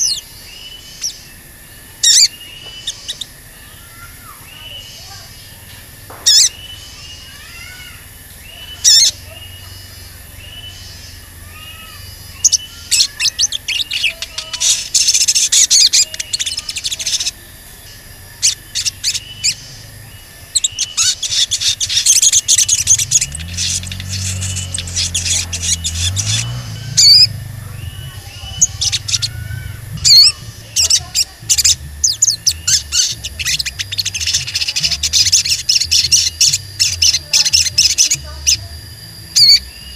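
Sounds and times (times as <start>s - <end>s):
bird chirping: 0.0s - 39.9s
low rumble: 21.9s - 39.9s.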